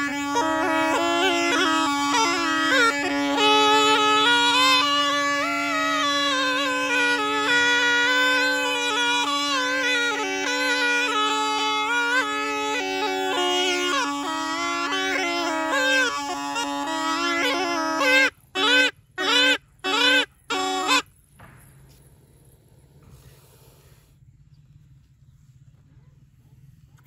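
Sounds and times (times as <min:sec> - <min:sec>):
reed pipe melody over drone: 0:00.0 - 0:21.1.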